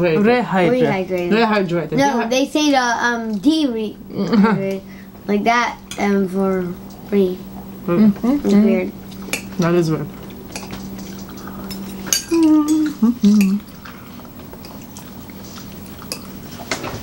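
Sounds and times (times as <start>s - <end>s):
forks clinking on plates: 10.5s - 13.6s.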